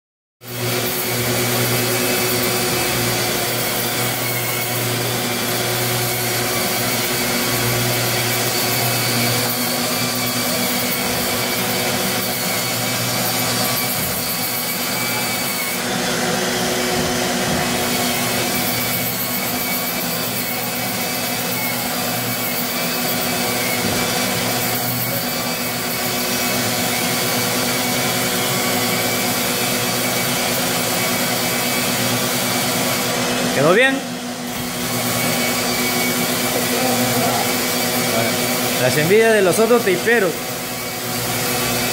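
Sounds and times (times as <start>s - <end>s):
electric sander motor whine: 0.5s - 19.2s, 32.8s - 41.9s
shop vacuum hiss: 0.5s - 41.9s.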